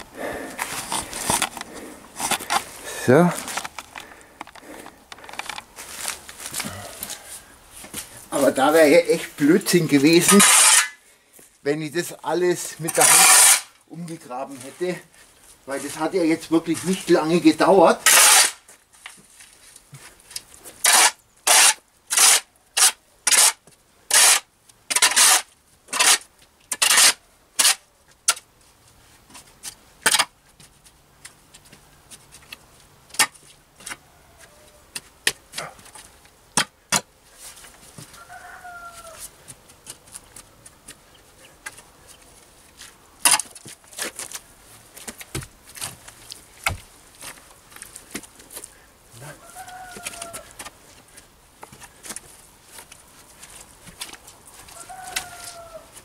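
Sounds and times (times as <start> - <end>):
shovel scraping soil on concrete: 5.8 - 11.0, 12.0 - 15.0, 15.8 - 28.4.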